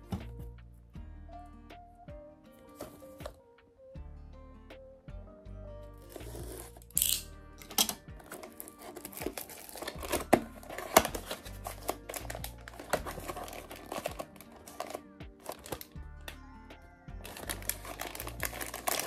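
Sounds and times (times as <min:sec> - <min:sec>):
background music: 0:00.0 - 0:19.0
shrink-wrap being slit and crinkled: 0:06.1 - 0:16.0, 0:17.2 - 0:19.0
cardboard box clicks and rustles: 0:08.2 - 0:15.9, 0:17.2 - 0:19.0.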